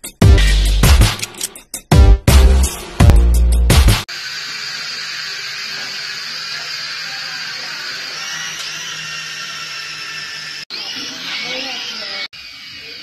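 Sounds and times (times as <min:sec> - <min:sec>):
toy quadcopter buzzing: 0:04.1 - 0:13.0.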